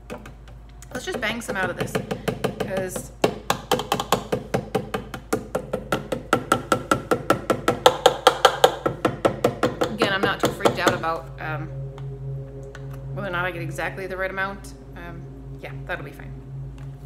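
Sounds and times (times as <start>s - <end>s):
container knocking with hollow ring: 1.1s - 11.2s.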